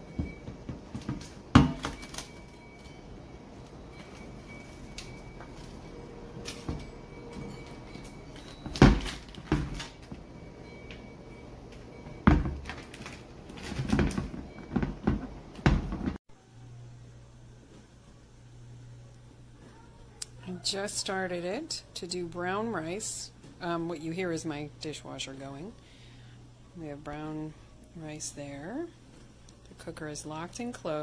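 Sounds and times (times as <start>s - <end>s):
dishwasher humming: 0.0s - 16.2s
rice cooker knocks and clunks: 12.2s - 12.7s.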